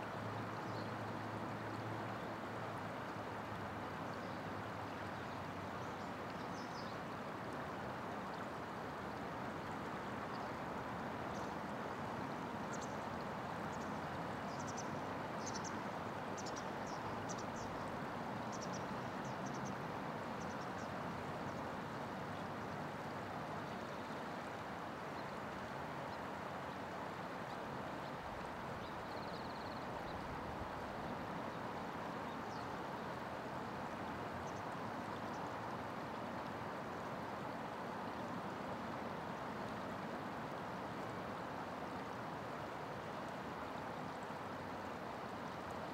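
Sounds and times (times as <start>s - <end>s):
flowing river water: 0.0s - 45.9s.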